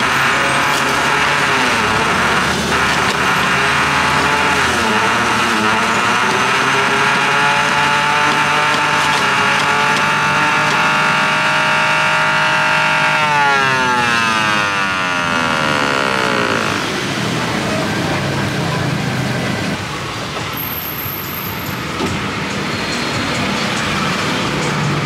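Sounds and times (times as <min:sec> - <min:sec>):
juicer motor whining: 0:00.2 - 0:17.1
juicer grinding fruit: 0:00.8 - 0:17.0.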